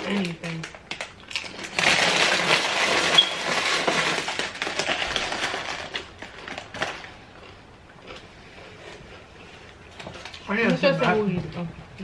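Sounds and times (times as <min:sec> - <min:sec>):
plastic snack bag crinkling: 0:00.0 - 0:09.0.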